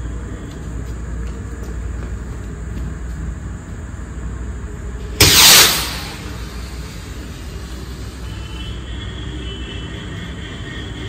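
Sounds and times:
firework rocket whoosh: 5.2 - 8.0.

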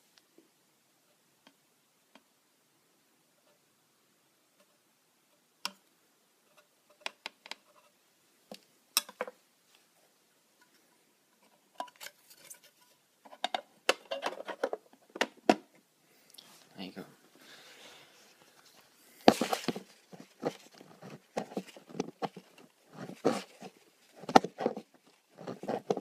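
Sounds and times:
tool and fingers tapping plastic: 19.3 - 26.0.

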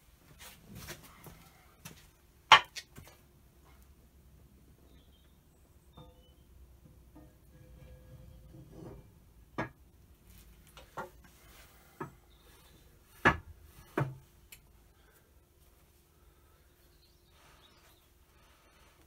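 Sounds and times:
metal rubbing on metal: 7.2 - 9.4.

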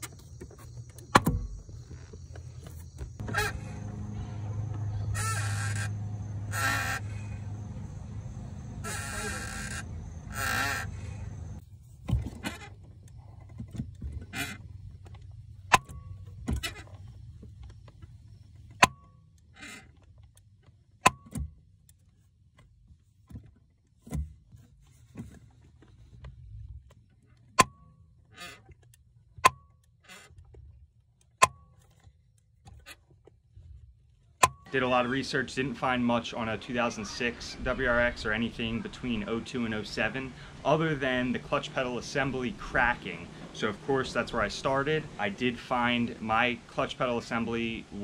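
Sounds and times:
pedal creaky squeaks: 0.0 - 7.1, 16.0 - 17.3, 19.4 - 20.1, 28.2 - 29.0, 29.9 - 30.5.

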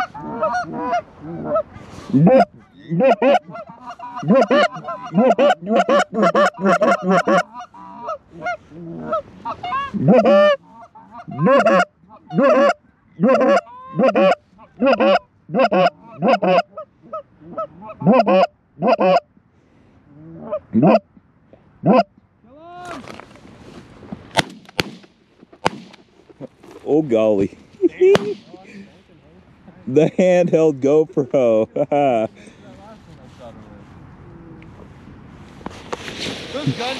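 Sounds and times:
goose honking and clucking: 0.0 - 19.3, 20.1 - 21.1, 21.8 - 22.1.

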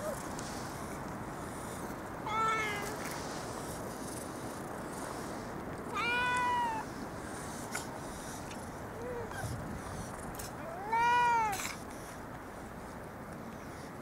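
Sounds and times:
cat meowing: 5.9 - 6.8, 10.7 - 11.6.

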